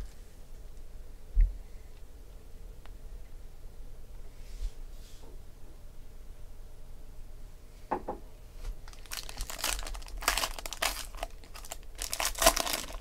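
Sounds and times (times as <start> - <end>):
foil wrapper crinkling and tearing: 8.8 - 13.0.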